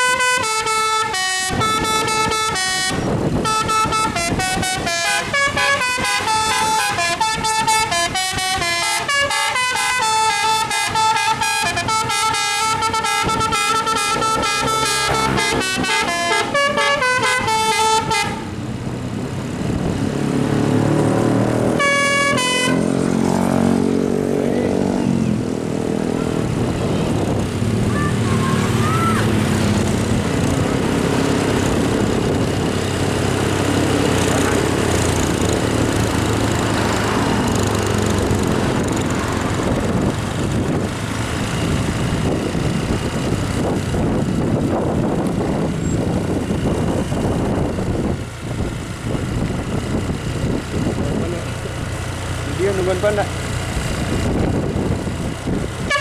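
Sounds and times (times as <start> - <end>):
multi-tone horn tune: 0.0 - 18.6, 21.7 - 23.2, 55.8 - 56.0
street traffic: 0.0 - 56.0
vehicle engine: 0.0 - 56.0.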